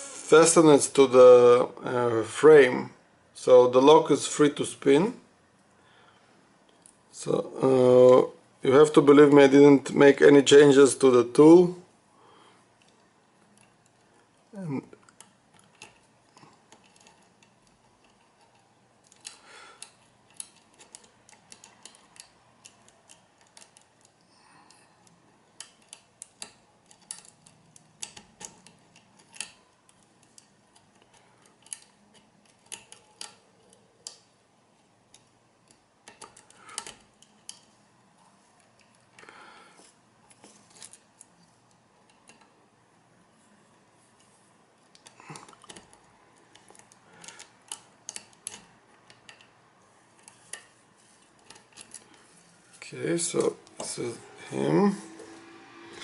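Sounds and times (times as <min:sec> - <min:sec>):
metallic clicks of lock picking: 0:25.0 - 0:34.3.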